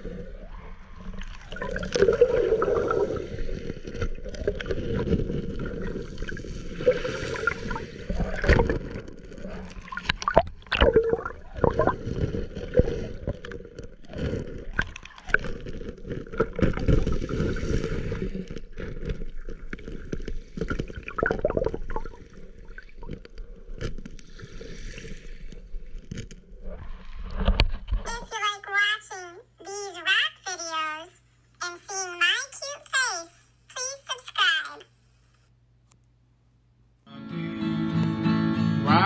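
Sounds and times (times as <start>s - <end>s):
underwater gurgling and sloshing: 0.0s - 28.2s.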